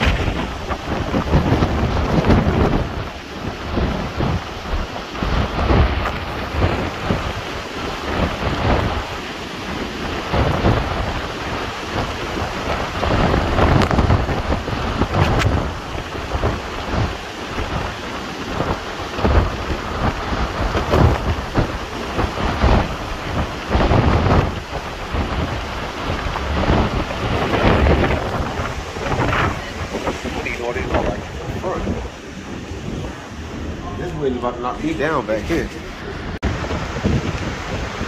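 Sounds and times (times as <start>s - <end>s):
storm wind and rain roaring: 0.0s - 38.0s
wind buffeting microphone: 0.0s - 38.0s.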